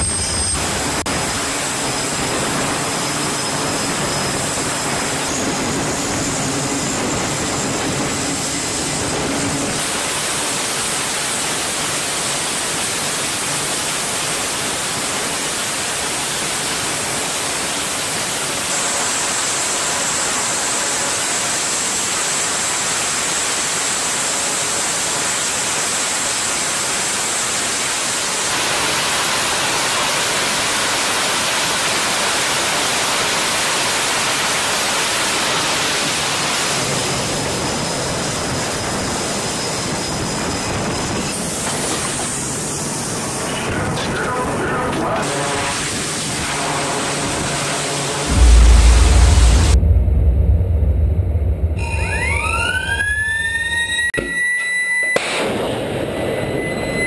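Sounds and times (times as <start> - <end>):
high thin whine: 0.0 - 5.4, 45.2 - 54.2
turboprop engines running: 0.0 - 21.9, 36.4 - 53.9.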